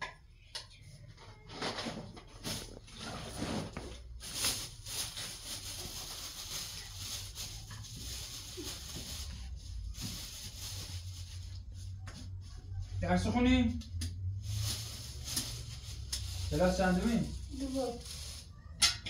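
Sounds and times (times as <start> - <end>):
plastic bags rustling: 1.4 - 13.2, 14.2 - 18.8.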